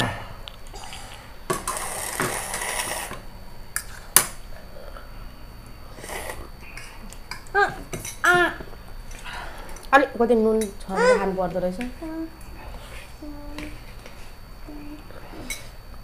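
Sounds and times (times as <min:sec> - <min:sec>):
small child vocalizing: 0:10.9 - 0:11.3.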